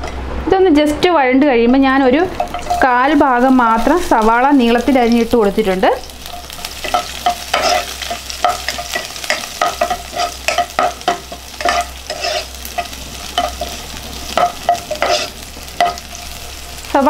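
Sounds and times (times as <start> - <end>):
onion sizzling in hot fat: 1.5 - 17.0
spatula scraping pan: 6.3 - 16.2.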